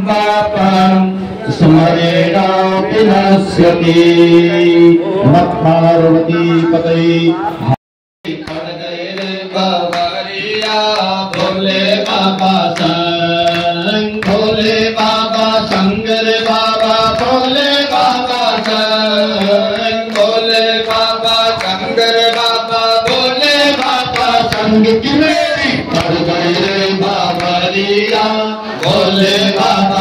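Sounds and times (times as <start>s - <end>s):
percussion strikes: 8.3s - 30.0s.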